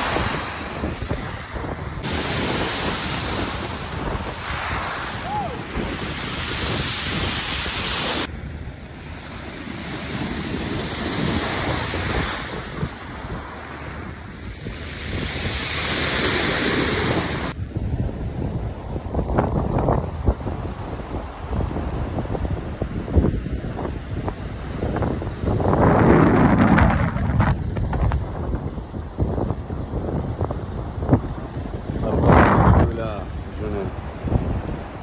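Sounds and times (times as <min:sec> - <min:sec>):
surf breaking on pebble beach: 0:00.0 - 0:08.3, 0:09.0 - 0:17.6
wind buffeting microphone: 0:00.0 - 0:35.0.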